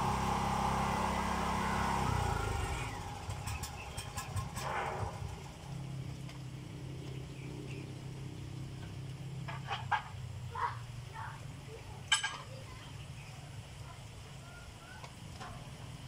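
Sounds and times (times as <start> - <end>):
engine running: 0.0 - 12.3.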